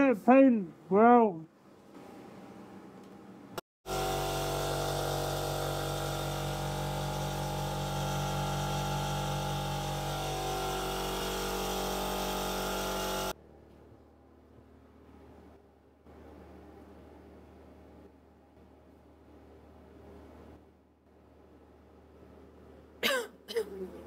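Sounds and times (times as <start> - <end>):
machine motor humming: 3.9 - 13.4.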